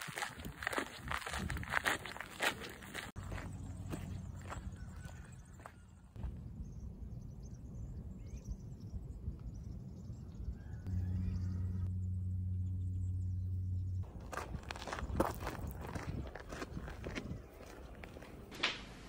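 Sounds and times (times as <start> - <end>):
low hum: 6.2 - 16.3
low rumble: 6.2 - 17.1.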